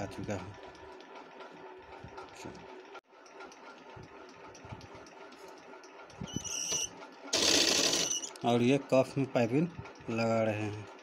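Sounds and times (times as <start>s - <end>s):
sewing machine stitching: 6.6s - 8.4s.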